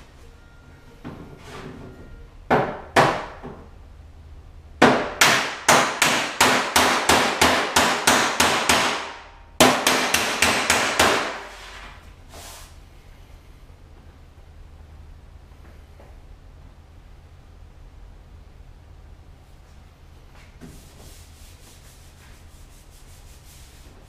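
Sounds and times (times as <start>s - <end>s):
hammer striking metal panel: 4.8s - 11.4s.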